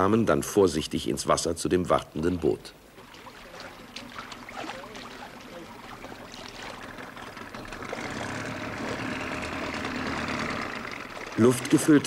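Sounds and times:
boat engine humming: 2.1s - 12.0s.

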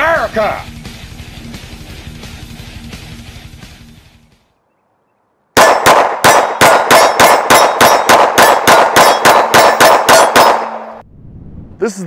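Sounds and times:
pistol shots in rapid succession: 5.6s - 11.0s.

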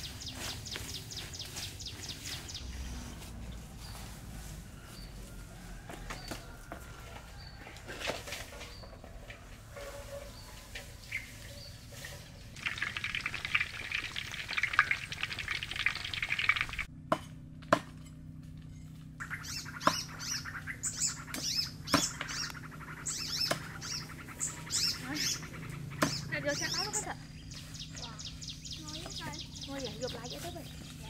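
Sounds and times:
birds chirping: 0.0s - 16.9s, 18.8s - 31.0s
rustling of cut grass: 0.0s - 16.9s, 26.6s - 31.0s
cleaver chopping on wooden block: 17.1s - 18.0s.

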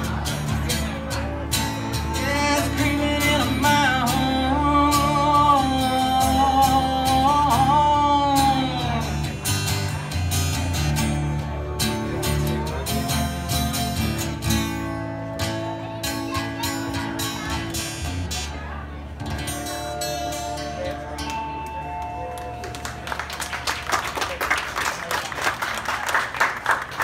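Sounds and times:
acoustic guitar strumming: 0.0s - 22.6s
pedal steel guitar: 0.0s - 22.8s.

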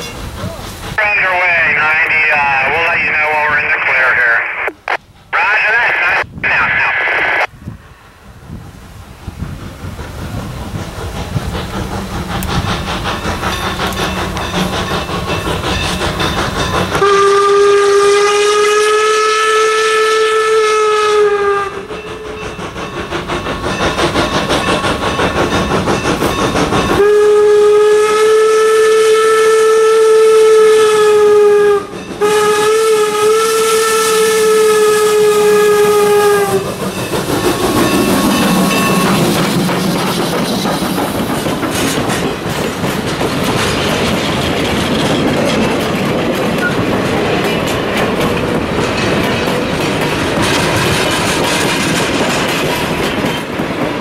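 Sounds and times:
steam locomotive exhaust beat: 0.0s - 5.4s, 7.3s - 54.0s
steam whistle blasts: 17.0s - 22.3s, 27.0s - 36.7s.

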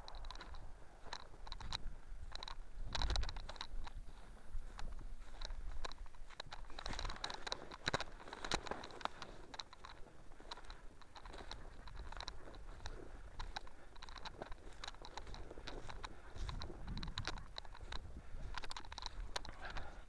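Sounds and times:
footsteps through dry vegetation: 0.0s - 20.0s.

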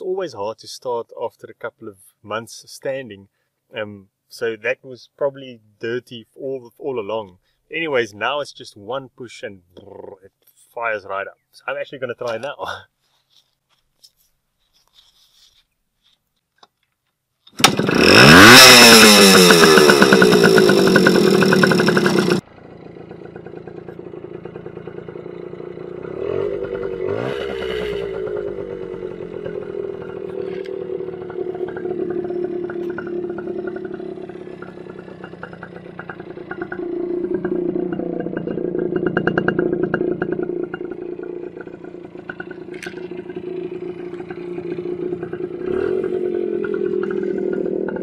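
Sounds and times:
two-stroke engine revving: 17.6s - 48.0s.

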